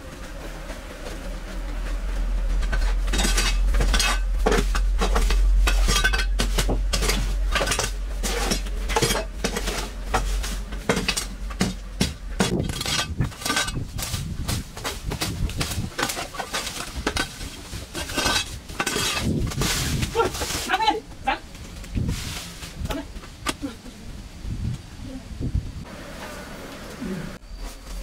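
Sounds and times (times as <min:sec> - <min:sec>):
low steady rumble: 0:00.0 - 0:27.6
hard objects clinking and clattering: 0:01.6 - 0:20.7.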